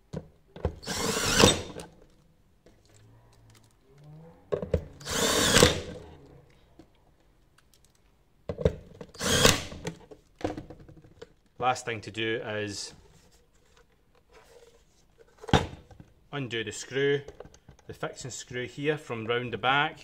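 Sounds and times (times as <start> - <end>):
cordless drill driving screws: 0.8 - 1.8, 5.0 - 6.0, 9.2 - 9.8.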